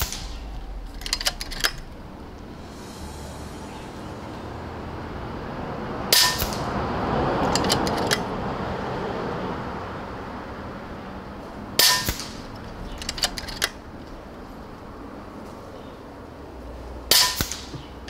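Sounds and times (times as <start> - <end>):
air rifle shot crack: 0.0 - 3.1, 6.1 - 6.7, 11.8 - 13.8, 17.1 - 17.9.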